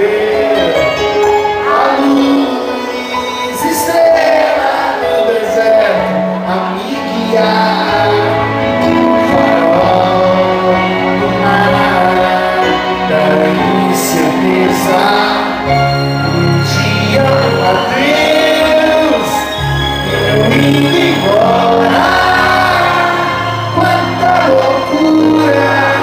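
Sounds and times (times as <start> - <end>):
keyboard accompaniment: 0.0 - 26.0
man singing: 0.0 - 26.0
bass line: 5.8 - 26.0.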